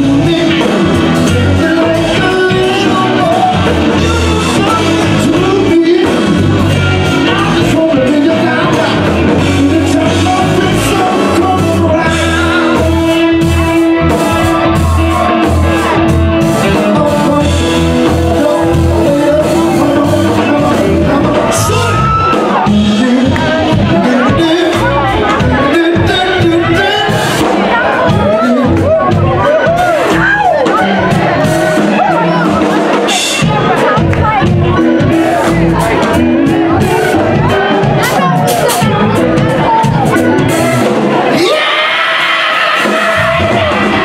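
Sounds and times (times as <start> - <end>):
man singing into microphone: 0.0 - 40.4, 41.2 - 44.0
bass guitar: 0.0 - 44.0
drums: 0.0 - 44.0
electric guitars: 0.0 - 44.0.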